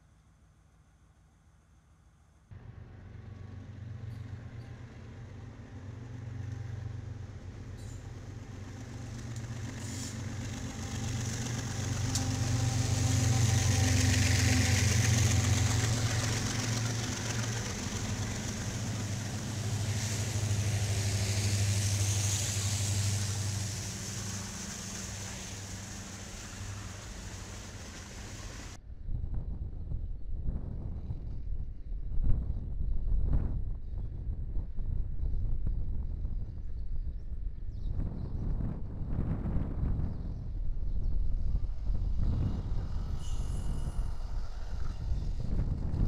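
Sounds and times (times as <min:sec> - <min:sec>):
diesel locomotive engines droning: 0:02.5 - 0:28.8, 0:38.6 - 0:46.0
steel wheel and rail noise: 0:02.6 - 0:28.8, 0:41.1 - 0:46.0.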